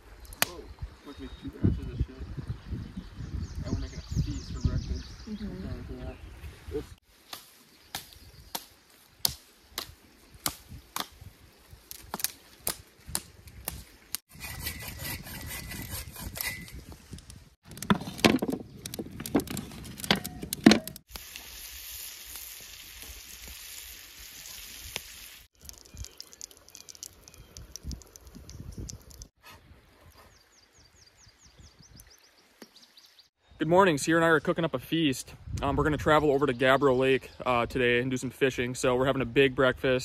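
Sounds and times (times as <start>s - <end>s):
campfire wood crackling: 7.0s - 14.8s, 16.4s - 29.4s
food sizzling on griddle: 21.1s - 25.5s.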